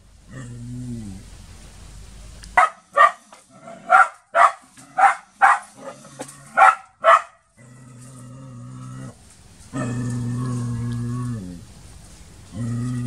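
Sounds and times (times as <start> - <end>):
steady low hum: 0.0 - 13.0
dog barking: 2.6 - 5.8, 6.5 - 7.4.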